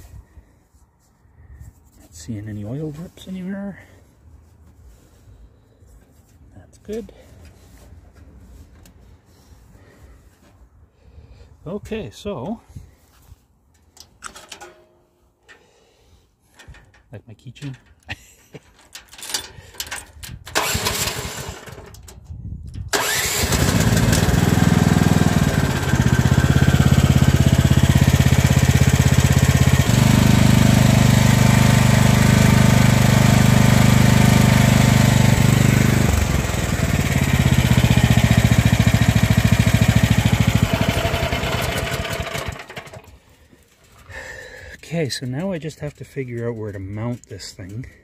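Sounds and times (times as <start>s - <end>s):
excavator engine starting: 19.3s - 22.2s, 22.8s - 43.3s
excavator engine running: 22.9s - 30.0s, 35.5s - 43.3s.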